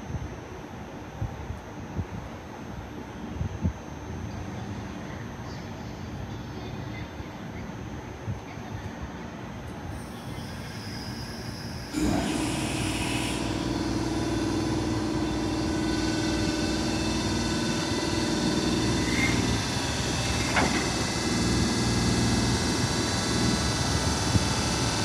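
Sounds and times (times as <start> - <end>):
electric locomotive humming: 9.9 - 25.0.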